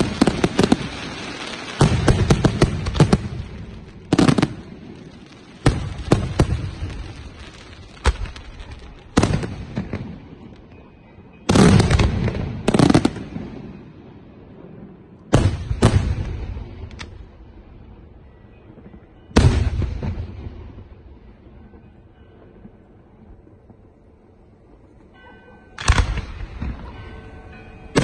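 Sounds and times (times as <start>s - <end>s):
fireworks banging: 0.0s - 13.8s, 15.3s - 18.0s, 18.6s - 28.0s.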